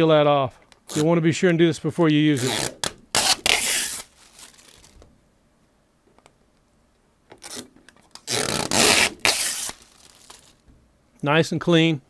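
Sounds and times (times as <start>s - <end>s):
plastic film peeling: 0.7s - 1.2s, 2.0s - 5.1s, 7.3s - 10.6s.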